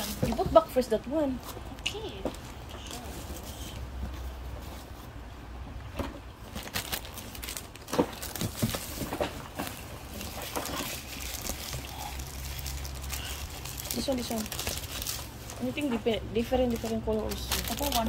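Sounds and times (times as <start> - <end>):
low steady hum: 0.0 - 18.0
plastic packaging crinkling: 6.4 - 18.0.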